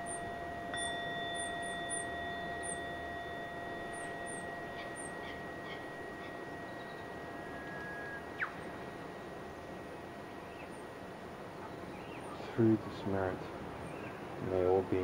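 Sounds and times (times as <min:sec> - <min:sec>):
faint high bird chirps: 0:00.0 - 0:10.9, 0:11.6 - 0:12.5
ambient ringing tones: 0:00.0 - 0:15.0.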